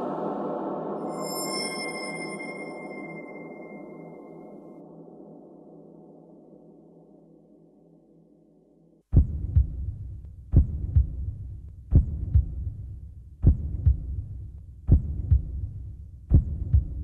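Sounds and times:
slow heartbeat: 9.1s - 17.0s.

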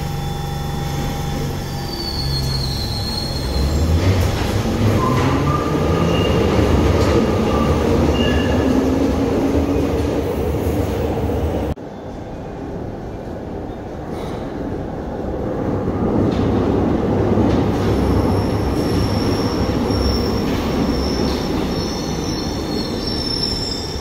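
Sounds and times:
wheels squealing: 0.2s - 8.9s, 17.8s - 24.0s
train wheels rumbling on rail: 0.8s - 11.8s, 12.4s - 24.0s.

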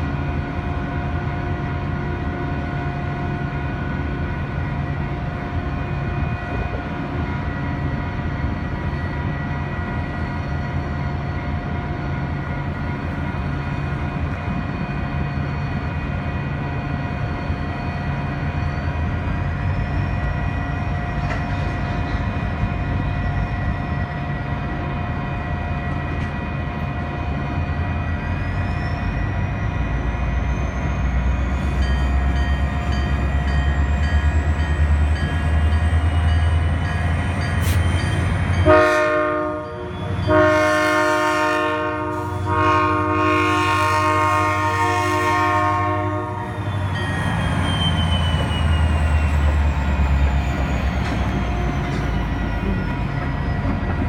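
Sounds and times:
freight train rumbling: 0.0s - 54.0s
crossing bell ringing: 31.5s - 41.0s, 46.0s - 54.0s.

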